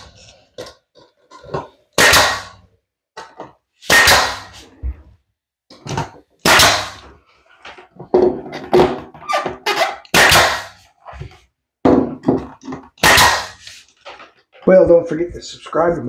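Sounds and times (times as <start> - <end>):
nail gun shots: 2.0 - 2.6, 3.9 - 4.6, 6.4 - 7.1, 10.1 - 10.8, 13.0 - 13.7.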